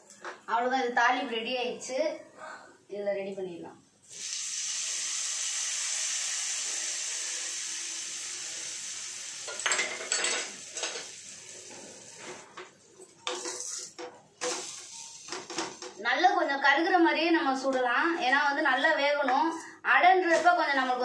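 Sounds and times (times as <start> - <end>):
hot oil sizzling: 4.0 - 12.6, 13.2 - 16.0
utensils clinking: 9.5 - 11.2.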